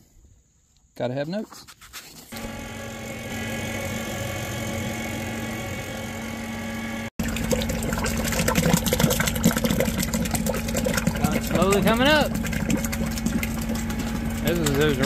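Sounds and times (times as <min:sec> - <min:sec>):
mixer engine running: 0:02.3 - 0:15.0
paddle churning liquid: 0:07.2 - 0:15.0.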